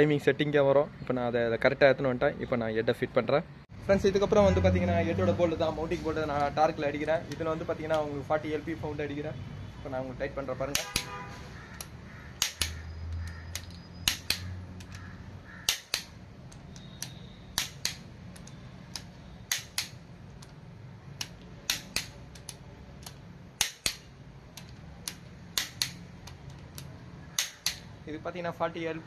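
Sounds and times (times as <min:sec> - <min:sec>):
torque wrench double clicks: 0:11.8 - 0:15.0, 0:15.6 - 0:20.6, 0:21.2 - 0:27.9.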